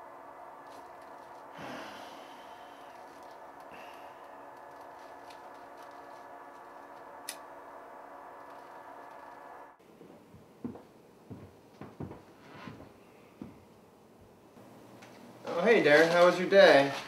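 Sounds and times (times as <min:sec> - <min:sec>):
low room hum: 0:00.0 - 0:17.0
man exhaling through nose: 0:01.5 - 0:03.0, 0:03.7 - 0:04.4.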